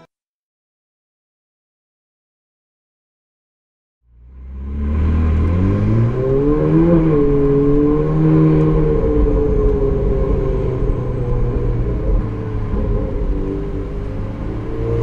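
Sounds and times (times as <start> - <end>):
car engine revving: 4.1 - 15.0.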